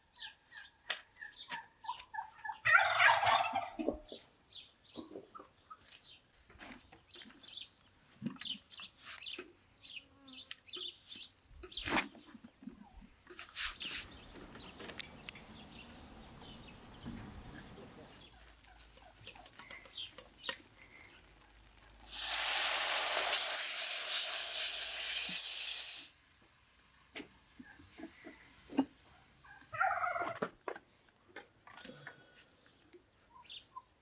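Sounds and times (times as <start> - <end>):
faint clicks and rustles: 17.0 - 22.0
water pouring: 18.3 - 26.1.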